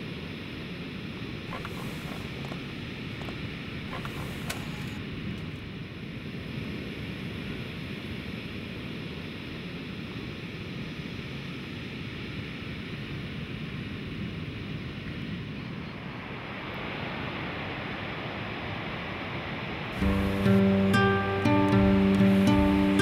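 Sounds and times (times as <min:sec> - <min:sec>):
wind: 0:00.0 - 0:23.0
sea surf: 0:16.2 - 0:23.0.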